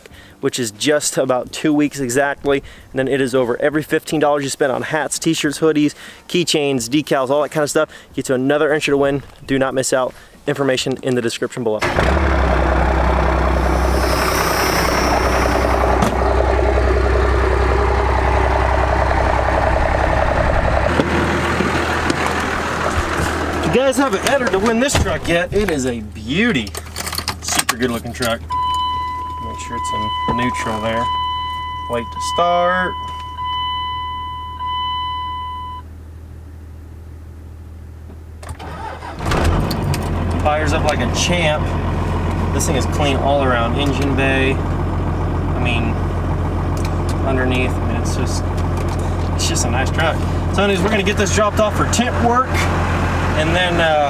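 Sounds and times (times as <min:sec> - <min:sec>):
diesel engine idling: 0:11.8 - 0:24.9, 0:39.8 - 0:54.0
dashboard warning tone: 0:28.5 - 0:35.9.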